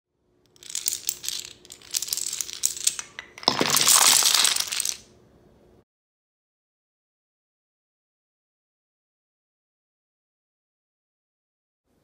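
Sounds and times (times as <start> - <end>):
toy dominoes toppling: 0.6 - 5.1.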